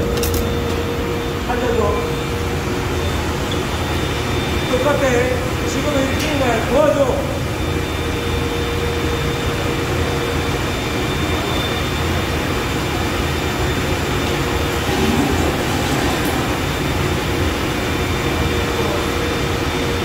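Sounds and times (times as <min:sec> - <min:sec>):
dust collector whirring: 0:13.7 - 0:19.8
panel saw running: 0:14.6 - 0:17.4.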